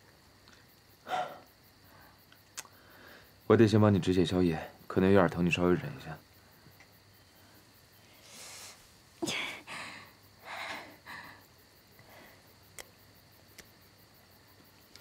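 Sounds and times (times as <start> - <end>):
faint clicks: 14.6 - 15.0.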